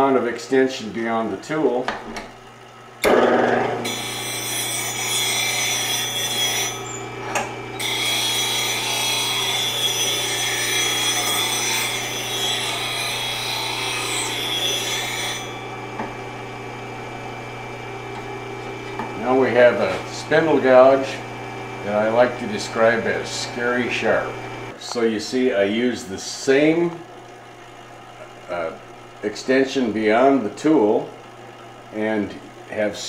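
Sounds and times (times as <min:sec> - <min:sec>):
bench grinder humming: 0:03.0 - 0:24.8
steel rasping on grinding wheel: 0:03.3 - 0:16.5, 0:18.2 - 0:24.8.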